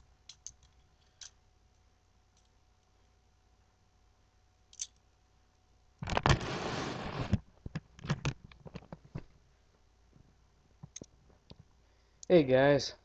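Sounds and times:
webcam handling rustle and scrape: 6.0 - 9.2.

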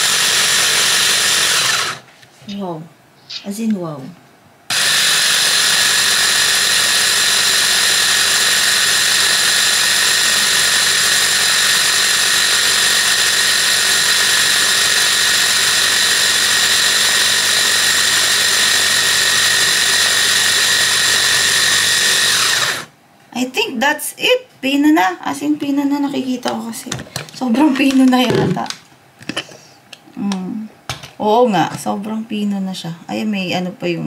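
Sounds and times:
hand blender whine: 0.0 - 2.1, 4.7 - 22.9.

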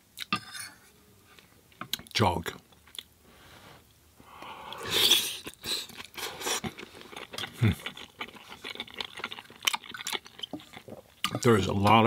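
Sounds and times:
person chewing: 4.4 - 11.5.

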